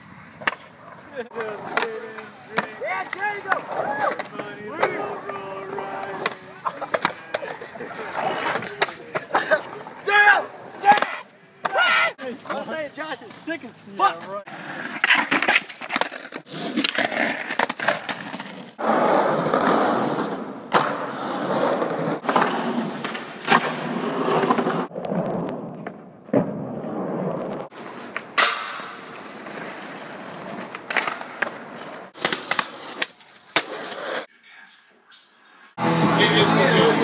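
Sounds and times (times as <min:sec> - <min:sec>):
skateboard wheels rolling on concrete: 0:00.0 - 0:34.3, 0:35.8 - 0:37.0
skateboard popping and landing clacks: 0:00.4 - 0:05.4, 0:06.1 - 0:07.7, 0:14.8 - 0:18.6, 0:19.4 - 0:34.2.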